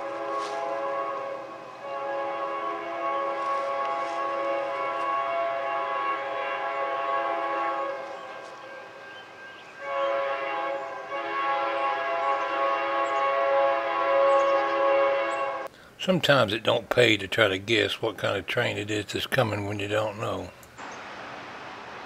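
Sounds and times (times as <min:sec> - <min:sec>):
locomotive air horn chord: 0:00.0 - 0:15.8.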